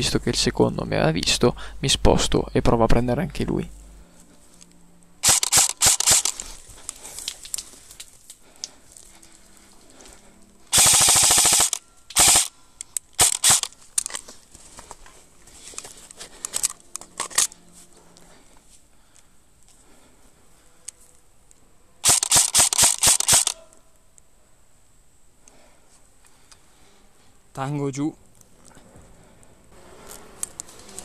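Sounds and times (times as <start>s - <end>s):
airsoft guns firing: 5.2s - 6.4s, 10.7s - 12.5s, 13.2s - 13.7s, 22.0s - 23.6s.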